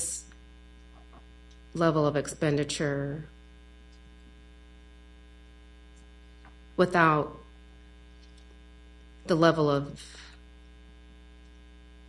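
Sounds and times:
woman speaking: 0:00.0 - 0:00.2, 0:01.8 - 0:03.3, 0:06.8 - 0:07.5, 0:09.3 - 0:10.4
electrical mains hum: 0:00.0 - 0:12.0.

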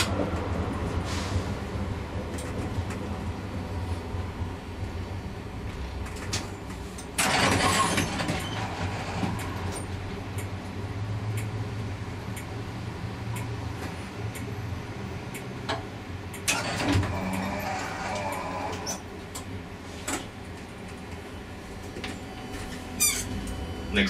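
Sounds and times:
tram low hum: 0:00.0 - 0:24.0.

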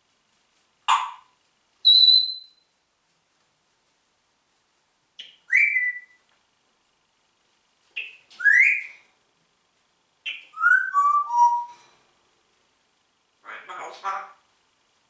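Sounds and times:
parrot whistling: 0:01.8 - 0:02.6, 0:05.2 - 0:06.2, 0:08.0 - 0:09.0, 0:10.3 - 0:11.8.

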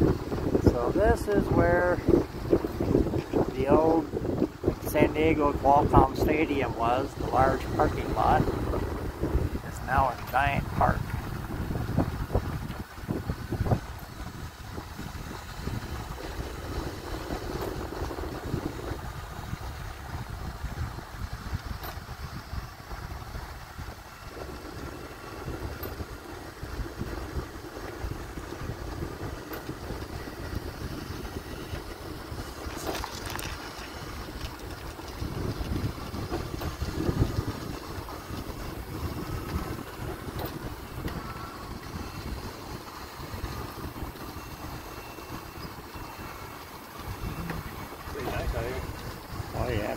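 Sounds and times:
wind buffeting microphone: 0:00.0 - 0:49.9
wheelchairs rolling on concrete: 0:24.3 - 0:49.9.

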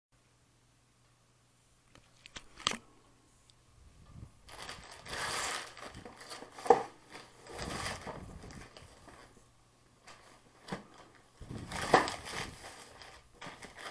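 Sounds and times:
plastic mailer crinkling: 0:04.1 - 0:13.9.

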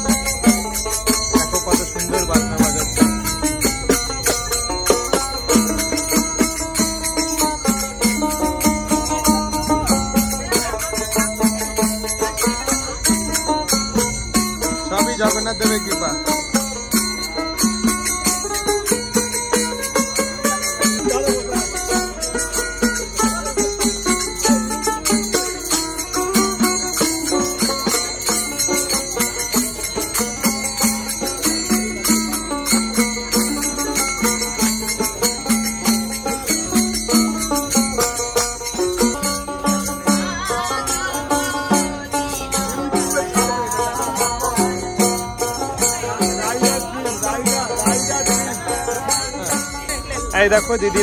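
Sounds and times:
hand cymbals clinking: 0:00.0 - 0:51.0
plucked stringed instrument: 0:00.0 - 0:51.0
voices singing: 0:38.5 - 0:50.8.

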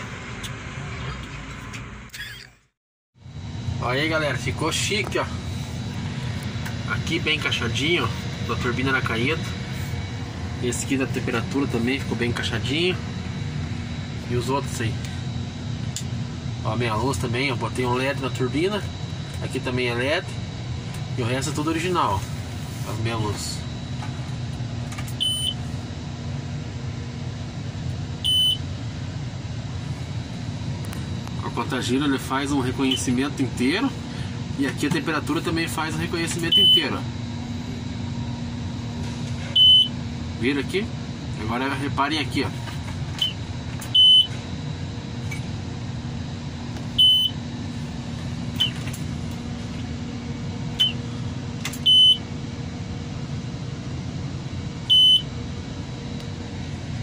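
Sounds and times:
low engine rumble: 0:03.2 - 0:57.0
dashboard warning beeps: 0:25.2 - 0:25.6, 0:28.2 - 0:28.6, 0:32.8 - 0:33.1, 0:36.4 - 0:37.0, 0:39.5 - 0:40.0, 0:43.2 - 0:44.4, 0:47.0 - 0:47.4, 0:48.6 - 0:48.8, 0:50.8 - 0:51.0, 0:51.8 - 0:52.3, 0:54.9 - 0:55.3
high electronic beeps: 0:36.5 - 0:36.8.

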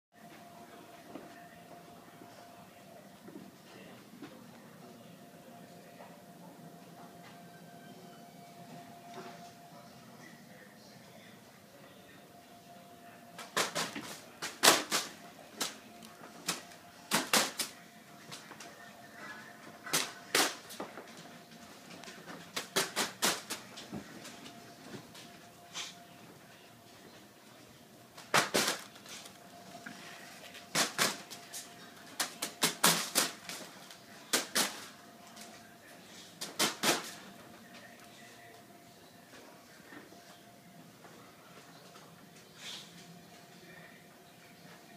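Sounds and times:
faint steady hum: 0:00.2 - 0:44.9
fan blades slapping foil balloon: 0:13.4 - 0:15.8, 0:16.4 - 0:17.7, 0:19.8 - 0:20.8, 0:22.4 - 0:23.8, 0:28.2 - 0:29.4, 0:30.6 - 0:33.7, 0:34.3 - 0:34.9, 0:36.4 - 0:37.2.

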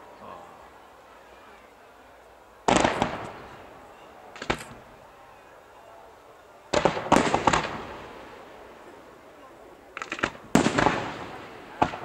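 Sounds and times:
fireworks bangs and crackling: 0:02.6 - 0:04.9, 0:06.7 - 0:09.1, 0:09.9 - 0:12.0.

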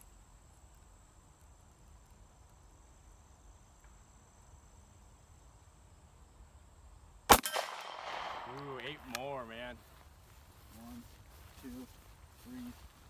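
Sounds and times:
handgun shot: 0:07.3 - 0:09.2.

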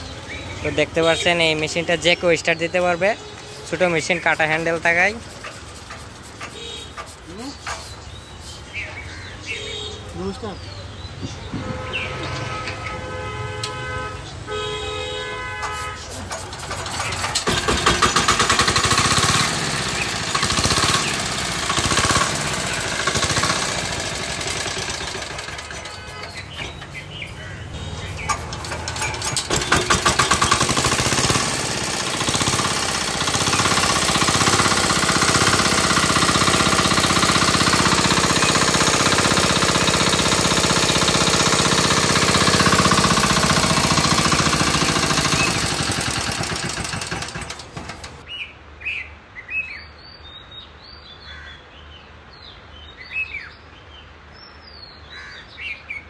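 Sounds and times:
diesel engine knocking: 0:04.0 - 0:07.2, 0:16.3 - 0:27.0, 0:27.8 - 0:48.2.

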